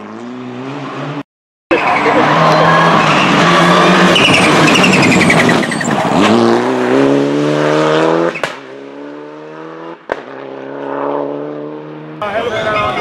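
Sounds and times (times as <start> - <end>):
rally car engine accelerating: 0.0 - 12.2
tyres squealing: 1.7 - 6.2.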